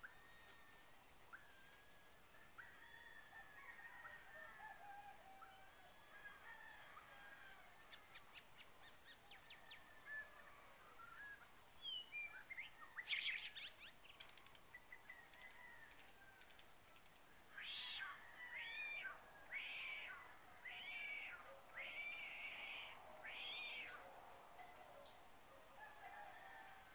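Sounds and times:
birds chirping: 0:17.3 - 0:25.2
drawn-out bird calls: 0:17.5 - 0:25.2.

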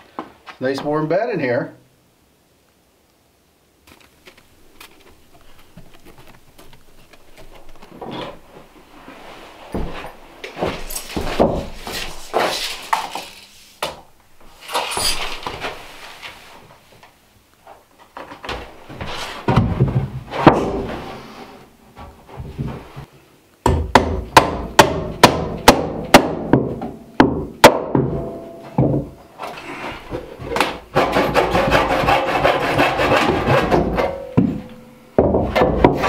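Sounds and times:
wooden boards knocking: 0:23.7 - 0:29.2.

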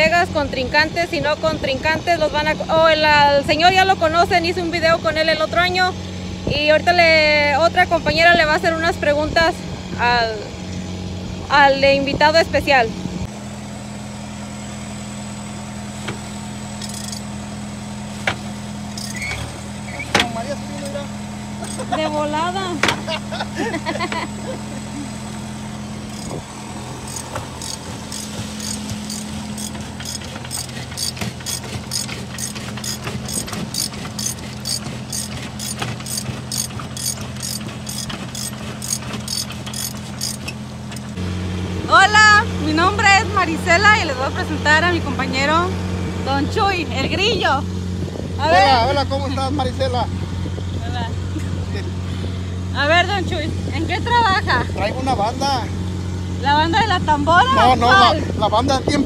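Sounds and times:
diesel truck engine idling: 0:00.0 - 0:59.0
ratchet handle clicking: 0:16.8 - 0:17.3, 0:18.3 - 0:19.4, 0:21.6 - 0:21.9, 0:26.1 - 0:26.4, 0:27.1 - 0:41.2.

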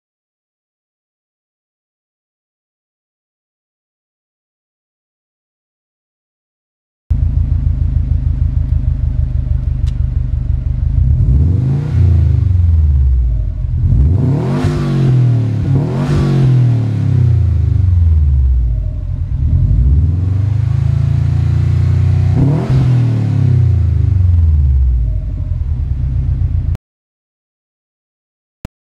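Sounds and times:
car engine idling and revving: 0:07.1 - 0:26.8.

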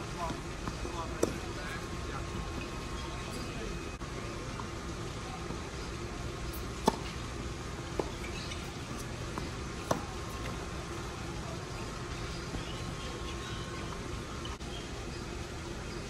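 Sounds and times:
tennis rackets hitting ball: 0:00.2 - 0:03.6, 0:06.5 - 0:07.2, 0:07.9 - 0:10.9.

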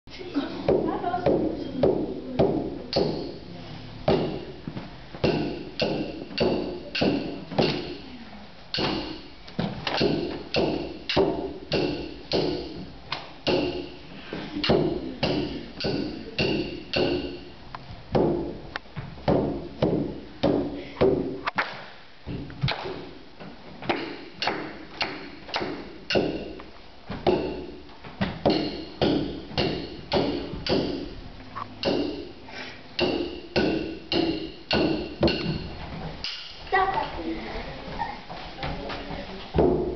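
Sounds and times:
frame drum struck with beater: 0:05.2 - 0:08.1, 0:08.7 - 0:18.6, 0:23.9 - 0:26.6, 0:27.2 - 0:31.2, 0:31.8 - 0:32.4, 0:33.0 - 0:36.6.

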